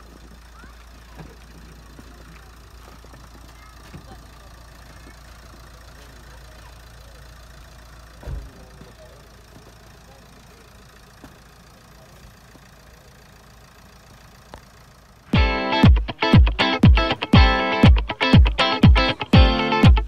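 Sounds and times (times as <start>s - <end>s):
low outdoor rumble: 0.0s - 20.0s
dull thump: 8.2s - 8.6s
music with guitar and heavy beats: 15.4s - 20.0s.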